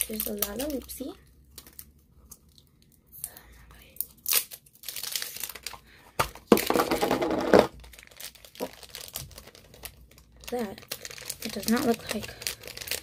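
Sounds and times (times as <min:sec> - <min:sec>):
packaging crinkling and tearing: 0:00.0 - 0:02.9, 0:04.0 - 0:13.0.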